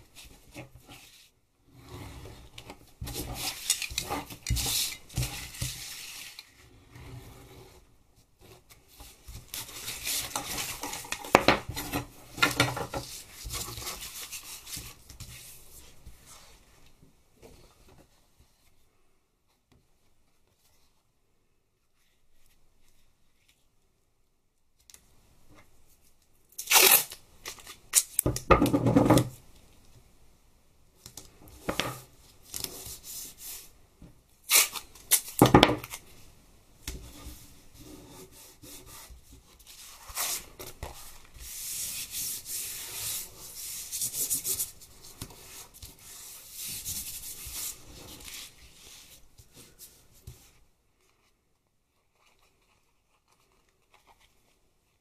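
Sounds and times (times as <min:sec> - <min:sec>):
masking tape ripping: 0:26.6 - 0:27.2, 0:34.5 - 0:36.0
hands rubbing tape on sheeting: 0:37.3 - 0:50.6.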